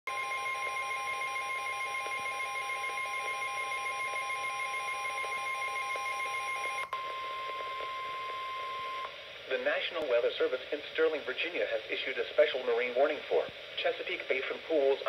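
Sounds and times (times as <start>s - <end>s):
alternating two-pitch beeping: 0.1s - 9.1s
steady alarm tone: 0.1s - 9.1s.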